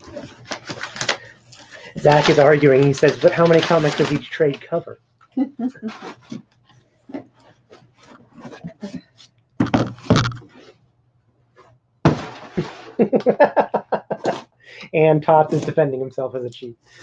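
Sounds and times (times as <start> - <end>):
cardboard and paper rustling: 0.0 - 4.6, 5.8 - 10.8
cardboard boxes tapping and scraping: 7.1 - 10.7, 12.0 - 12.9
heavy thump: 12.0 - 12.6.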